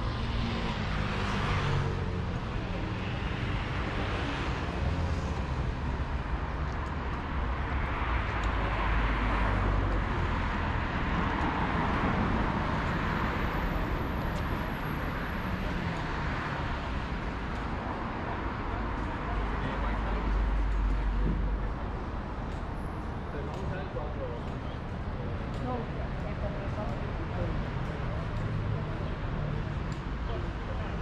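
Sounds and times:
vehicles driving past: 0:00.0 - 0:31.0.

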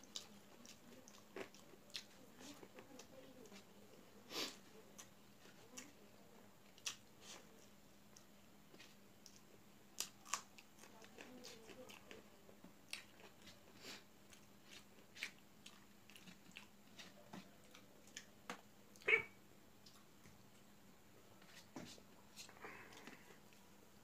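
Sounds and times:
chewing and lip smacks: 0:00.0 - 0:03.6, 0:14.3 - 0:18.3.

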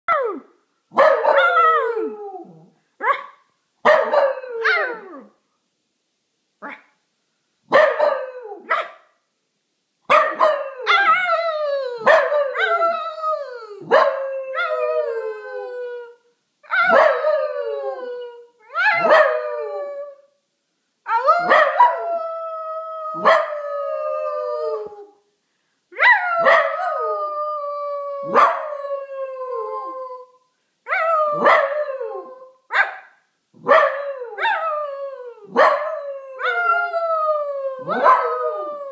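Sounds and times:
puppy barking: 0:10.1 - 0:10.6, 0:32.7 - 0:33.9
puppy howling: 0:36.4 - 0:38.9.

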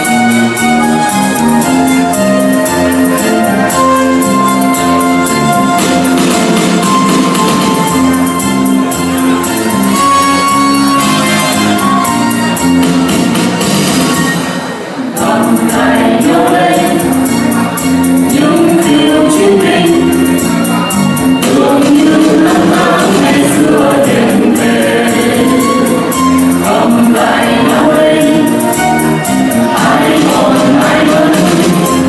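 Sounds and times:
instrumental accompaniment with beat: 0:00.0 - 0:32.0
group singing into microphones: 0:15.0 - 0:32.0.

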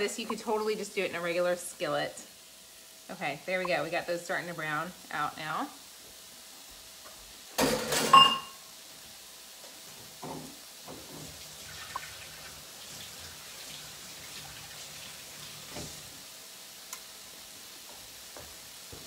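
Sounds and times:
meat patties sizzling: 0:00.0 - 0:19.0
tap water running: 0:10.2 - 0:16.2.

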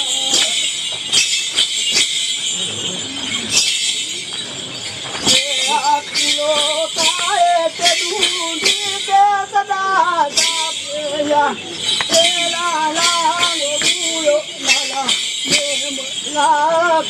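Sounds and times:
voices singing a chant: 0:00.0 - 0:00.9, 0:05.2 - 0:17.0
high jingling: 0:00.0 - 0:17.0
rhythmic stamps: 0:00.0 - 0:17.0.

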